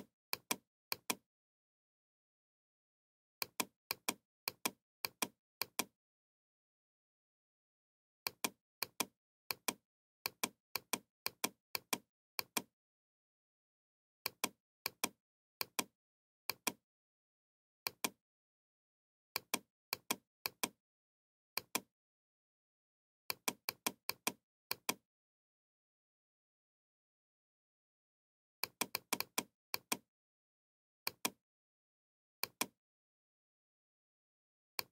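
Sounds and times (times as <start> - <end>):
computer mouse clicking: 0.3 - 1.2, 3.4 - 5.9, 8.3 - 12.7, 14.2 - 15.9, 16.5 - 16.8, 17.9 - 18.2, 19.4 - 20.8, 21.6 - 21.9, 23.3 - 25.0, 28.6 - 30.0, 31.1 - 31.4, 32.4 - 32.8.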